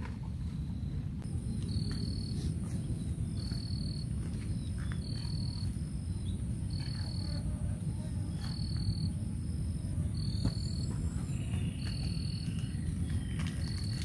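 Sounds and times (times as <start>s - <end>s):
low rumble: 0.0s - 14.0s
insects whining: 0.3s - 14.0s.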